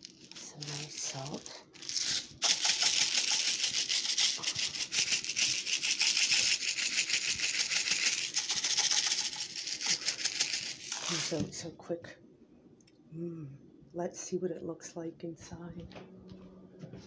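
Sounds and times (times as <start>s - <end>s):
salt grinder crunching: 0.0s - 11.5s.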